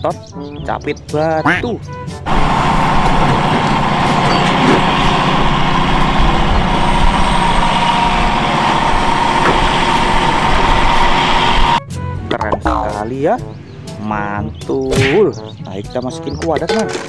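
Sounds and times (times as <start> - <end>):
excavator diesel engine under load: 2.3 - 11.8
steady whine: 2.3 - 11.8.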